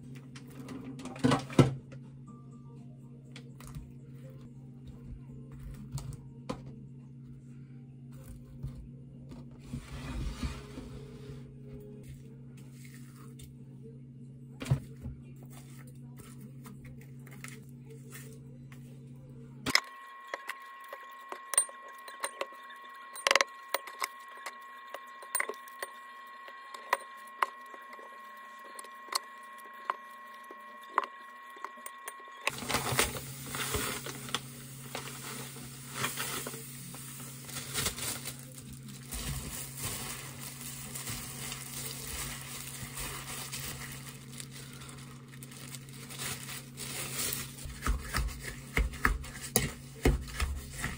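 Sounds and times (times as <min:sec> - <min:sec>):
low hum: 0:17.6 - 0:47.7.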